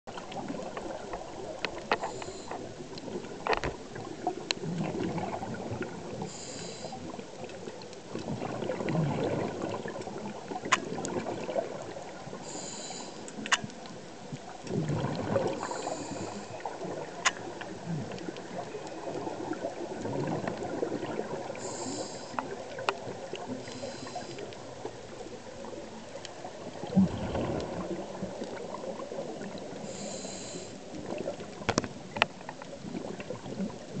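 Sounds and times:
diver breathing through regulator: 2.0 - 2.7, 6.2 - 7.1, 12.4 - 13.3, 15.4 - 16.7, 21.5 - 22.6, 23.5 - 24.5, 29.8 - 30.8
exhaled bubbles rushing: 3.0 - 6.3, 8.1 - 12.4, 14.6 - 21.6, 25.4 - 29.8, 32.8 - 34.0.

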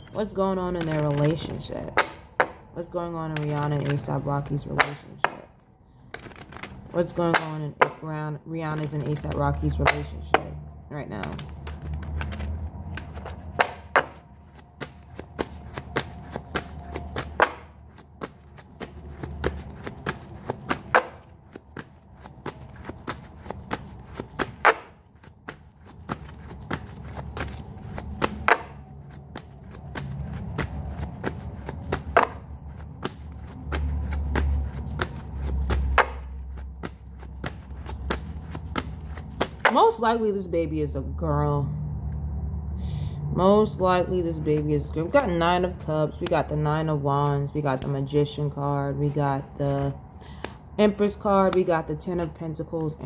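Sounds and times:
cards shuffling clicks: 0.0 - 2.7, 3.3 - 8.0, 8.6 - 10.2, 11.1 - 39.8.

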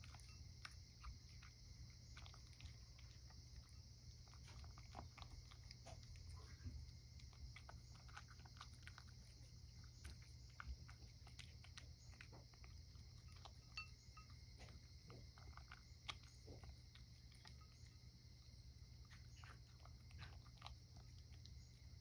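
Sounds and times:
cat chewing and crunching kibble: 0.0 - 22.0.

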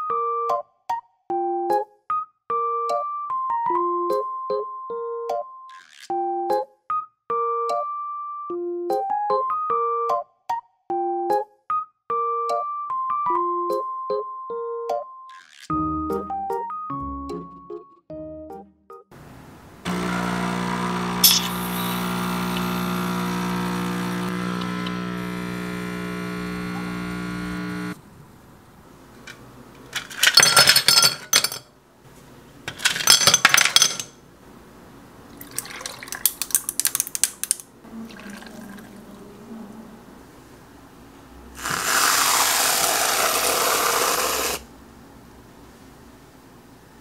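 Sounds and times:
liquid crackling in a glass: 19.9 - 27.9, 35.3 - 39.0
espresso machine pump humming: 19.9 - 28.0, 41.6 - 44.6
ice clattering in a glass: 21.2 - 21.8, 30.0 - 31.6, 32.7 - 34.1, 35.4 - 38.8.

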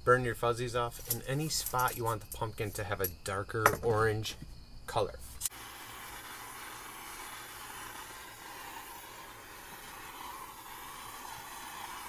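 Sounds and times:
gas torch hissing: 5.4 - 12.0.

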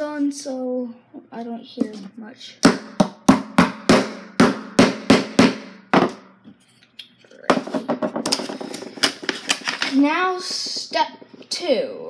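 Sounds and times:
hammer hitting nail: 2.6 - 6.3.

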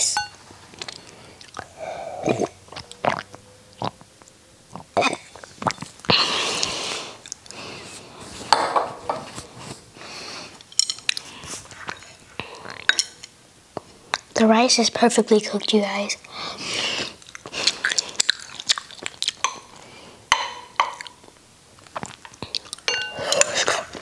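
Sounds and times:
glass clinking on glass table: 0.2 - 0.4, 22.9 - 23.3.

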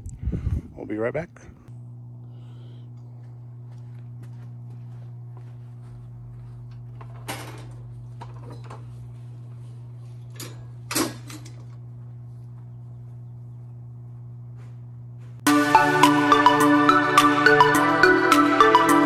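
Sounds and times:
steady low hum: 0.0 - 15.6.

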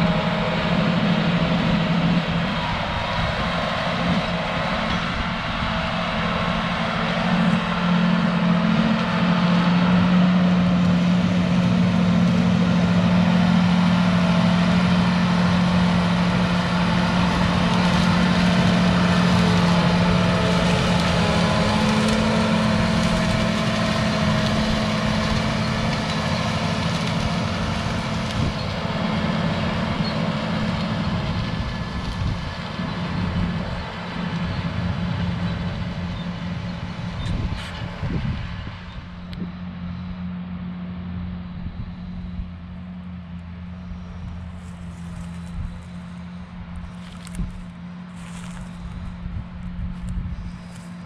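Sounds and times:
plow rumbling: 0.0 - 51.0
tractor diesel engine droning: 0.0 - 51.0.

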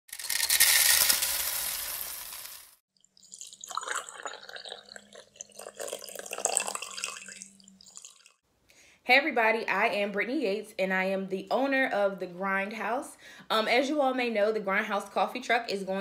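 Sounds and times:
water pouring: 0.1 - 8.4.

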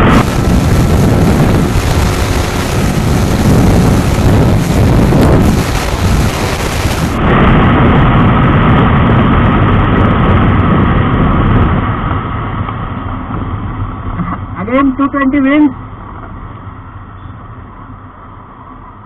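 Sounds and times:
motorcycle engine: 0.0 - 14.6
wind rush: 0.0 - 15.1.

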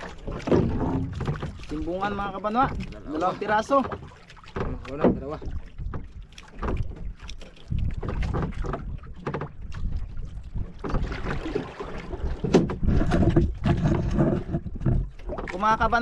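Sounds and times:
water slapping against boat hull: 0.0 - 16.0
wind buffeting microphone: 0.0 - 16.0.

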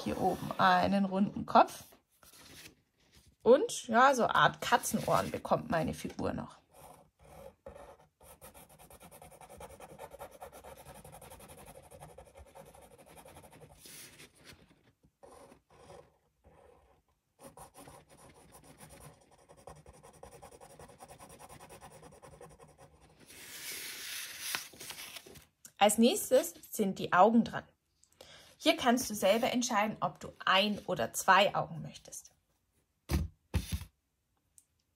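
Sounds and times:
pen scratching on paper: 6.6 - 14.4, 15.2 - 24.1.

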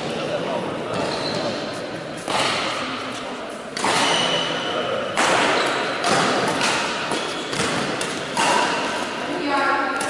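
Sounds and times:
racket hitting shuttlecock: 2.2 - 3.1, 3.7 - 4.5, 5.1 - 9.2.

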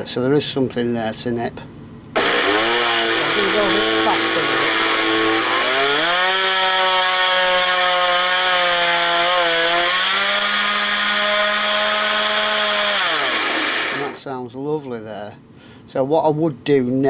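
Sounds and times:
electric motor whine: 2.1 - 14.2.

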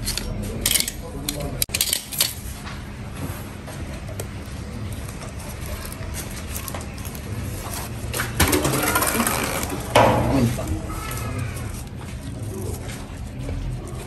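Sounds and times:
hand tools clinking: 0.0 - 2.4.

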